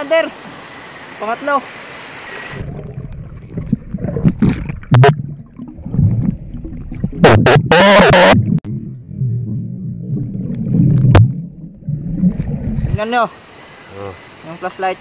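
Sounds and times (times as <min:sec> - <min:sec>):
muffled underwater rumbling: 0:02.6 - 0:13.0.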